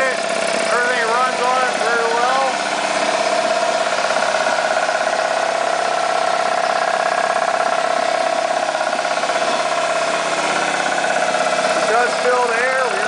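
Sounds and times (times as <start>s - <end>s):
air compressor running: 0.0s - 13.0s.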